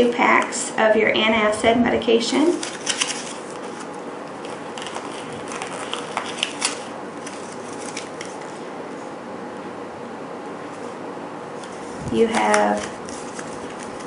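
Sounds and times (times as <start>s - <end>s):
paper and plastic crinkling: 2.5s - 8.7s, 11.6s - 14.0s.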